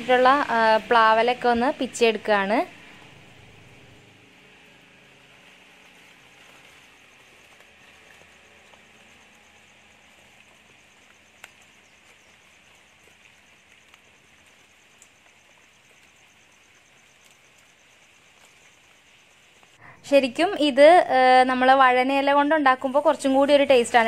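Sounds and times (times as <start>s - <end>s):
insect trilling: 1.6s - 20.7s.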